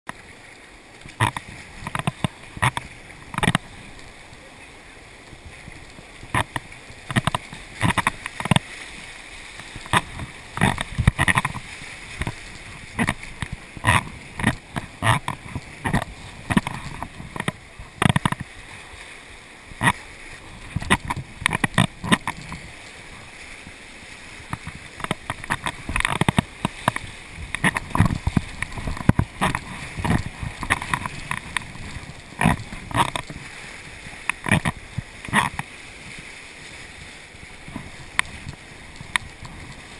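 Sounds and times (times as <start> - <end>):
waves splashing over boat: 0.1 - 39.9
whitewater rapids rushing: 0.1 - 39.9.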